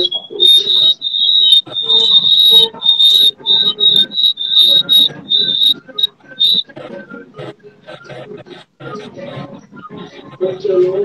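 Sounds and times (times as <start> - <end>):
piercing high whistle tone: 0.0 - 6.6
man making wordless vocal sounds: 0.0 - 11.0.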